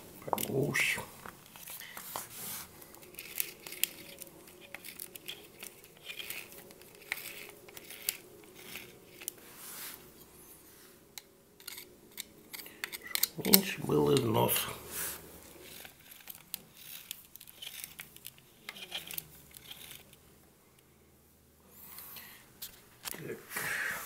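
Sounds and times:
tools clicking and scraping: 2.8 - 9.4, 11.2 - 14.7, 15.5 - 20.2.

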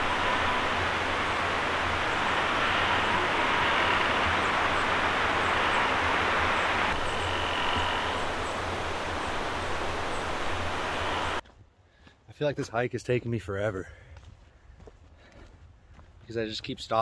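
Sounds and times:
tree creaking: 0.0 - 11.4
wind rushing through trees: 0.0 - 11.4.

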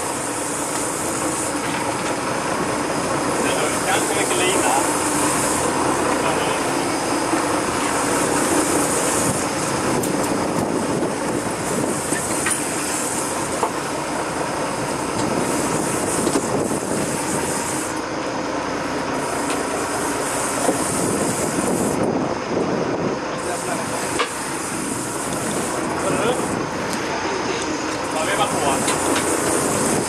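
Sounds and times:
boat engine running: 0.0 - 30.0
water rushing along hull: 0.0 - 30.0
wind on microphone: 7.2 - 13.5, 14.7 - 17.8, 20.6 - 27.1, 28.4 - 30.0.

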